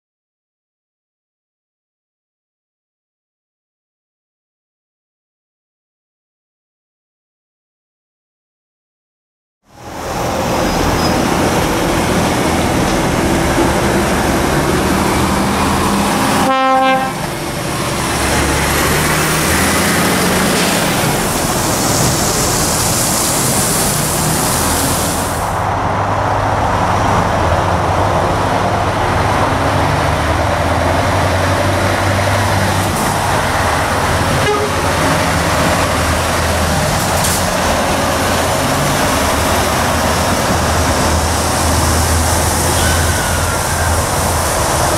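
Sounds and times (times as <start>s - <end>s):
diesel truck engines running: 9.7s - 44.9s
truck horn toot: 16.3s - 17.3s, 34.3s - 35.0s, 42.7s - 44.0s
air hiss: 20.2s - 25.6s.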